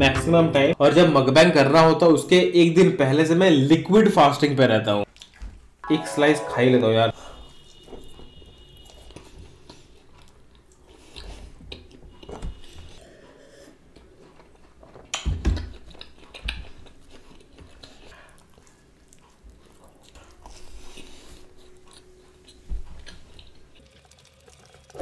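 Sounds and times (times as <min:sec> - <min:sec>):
biting and chewing pizza: 0:07.4 - 0:23.8
crackly mouth sounds: 0:08.8 - 0:24.0.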